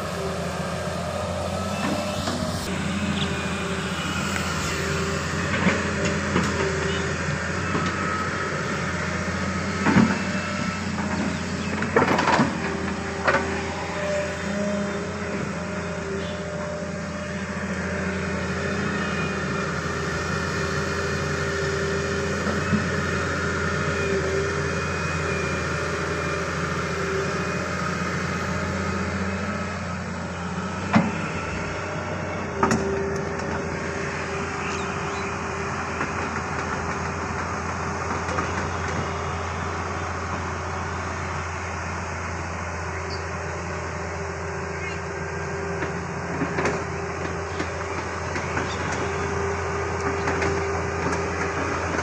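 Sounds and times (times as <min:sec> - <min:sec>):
excavator diesel engine running: 0:00.0 - 0:52.0.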